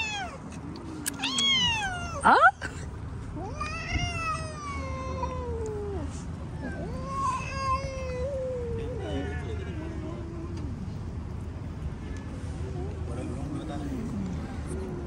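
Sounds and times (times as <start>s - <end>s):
cat meowing: 0.0s - 0.4s, 1.1s - 2.4s, 6.6s - 9.2s.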